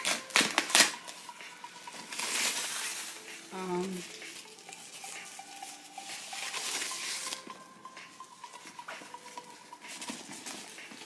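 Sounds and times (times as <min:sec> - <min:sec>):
paper and plastic crinkling: 0:01.9 - 0:07.6.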